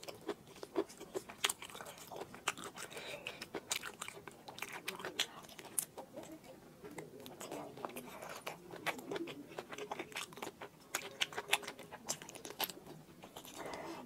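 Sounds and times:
close chewing and biting: 0.0 - 14.0.

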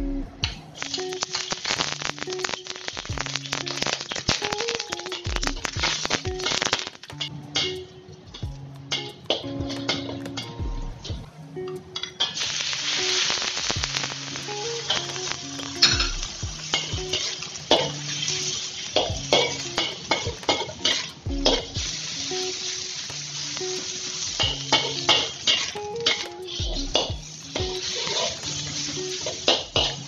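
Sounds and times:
background music: 0.0 - 30.0
pork sizzling in a wok: 0.4 - 7.8, 12.0 - 30.0
spatula scraping and clanking wok: 15.8 - 21.7, 24.3 - 27.1, 27.8 - 30.0.

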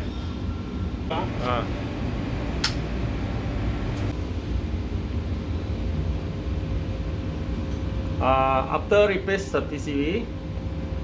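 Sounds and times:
steady low rumble: 1.1 - 7.5
switch clicking: 2.6 - 2.8.

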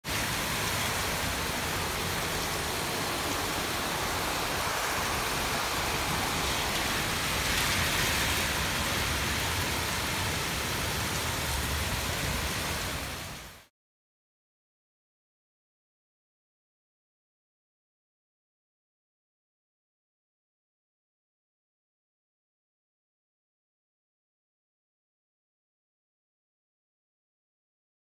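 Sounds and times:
heavy rain pouring: 0.0 - 13.7.

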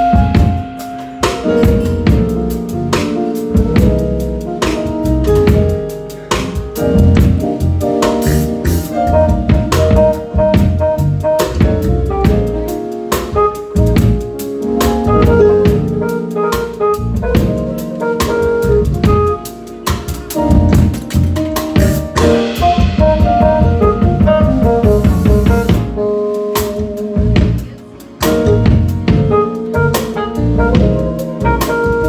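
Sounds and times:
drum kit groove: 0.0 - 32.0
electric guitar chords: 0.0 - 32.0
keyboard chords: 0.0 - 32.0.

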